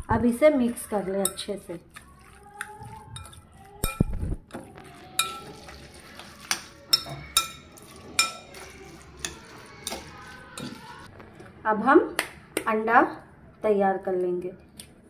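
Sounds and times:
metal spoon clinking on glass bowl: 0:03.1 - 0:04.2, 0:05.1 - 0:05.8, 0:06.4 - 0:08.6.

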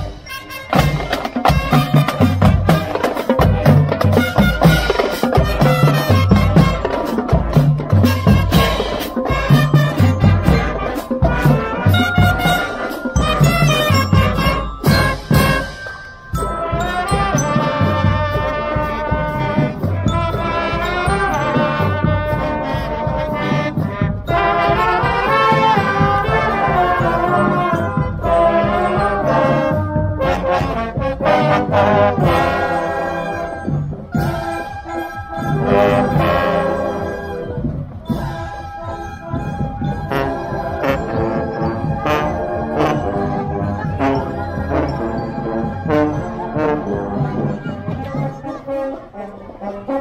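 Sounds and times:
drums: 0:00.0 - 0:49.2
brass band playing: 0:00.0 - 0:50.0.

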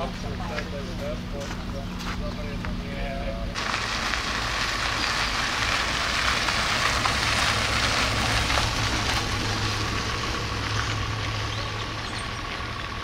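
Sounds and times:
truck driving past: 0:03.5 - 0:13.0.

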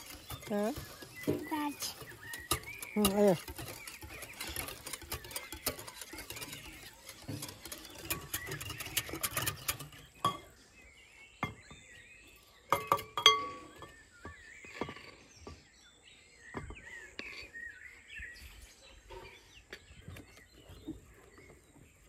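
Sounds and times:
metal spoon clinking against bowls: 0:00.0 - 0:10.5
rustling and clicking from handling: 0:00.0 - 0:10.6
birds chirping faintly: 0:00.0 - 0:22.0.

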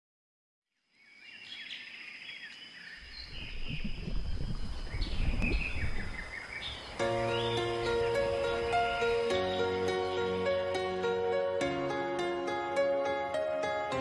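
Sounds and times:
birds chirping: 0:00.9 - 0:11.6.

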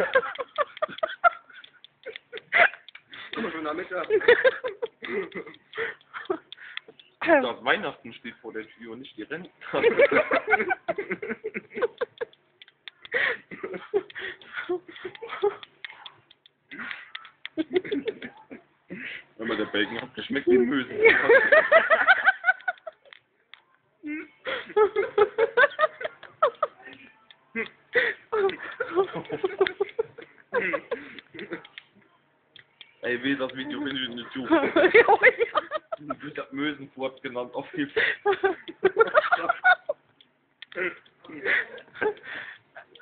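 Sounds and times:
people laughing: 0:00.0 - 0:06.6, 0:09.6 - 0:12.4, 0:13.1 - 0:15.7, 0:16.7 - 0:23.1, 0:24.1 - 0:27.0, 0:27.6 - 0:31.8, 0:33.4 - 0:36.5, 0:37.6 - 0:40.1, 0:40.8 - 0:43.0.

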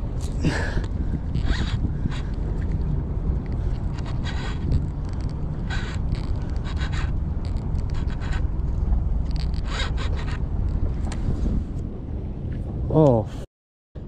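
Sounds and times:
wind rumble on microphone: 0:00.0 - 0:13.4
fishing reel clicking: 0:01.3 - 0:08.5, 0:09.2 - 0:10.4.

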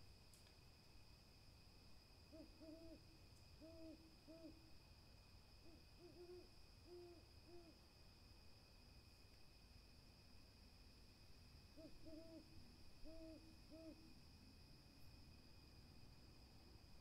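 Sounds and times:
faint high-pitched hum: 0:00.0 - 0:17.0
owl hooting softly: 0:02.3 - 0:04.7, 0:05.6 - 0:07.8, 0:11.7 - 0:14.2.

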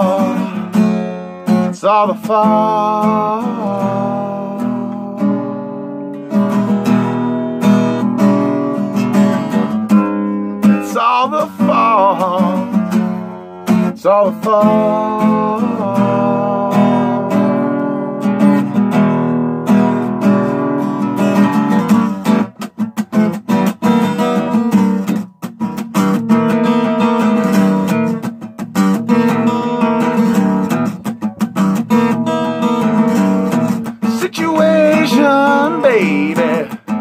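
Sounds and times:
person singing: 0:00.0 - 0:05.8, 0:10.2 - 0:18.1, 0:33.7 - 0:37.0
acoustic guitar strumming: 0:00.0 - 0:37.0.

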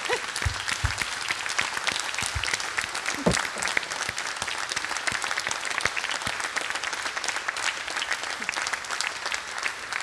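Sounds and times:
audience clapping: 0:00.0 - 0:10.0.

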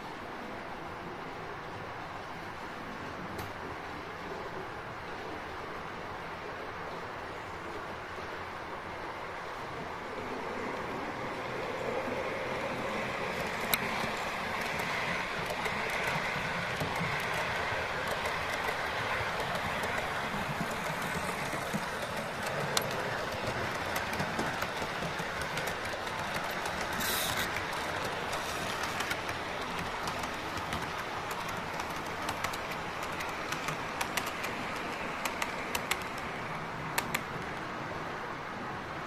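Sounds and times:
wheels clicking over rail joints: 0:11.4 - 0:37.8
model train rushing hiss: 0:13.2 - 0:31.4.

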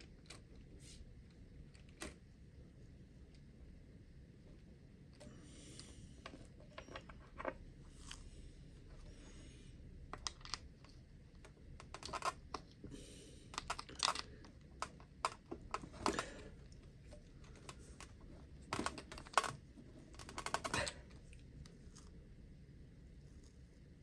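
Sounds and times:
handling noises: 0:10.0 - 0:22.2
plastic clicks and rattles: 0:10.1 - 0:12.8, 0:13.5 - 0:21.2.

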